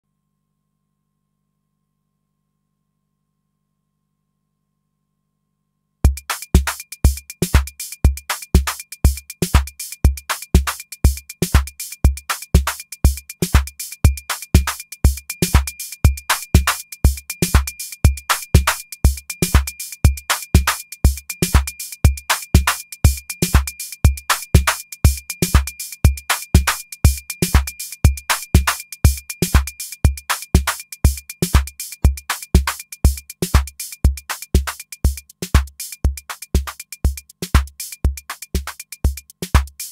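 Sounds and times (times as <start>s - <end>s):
faint steady high tone: 0.0s - 6.0s
hi-hat ticks: 6.1s - 39.9s
kick drum: 6.1s - 39.9s.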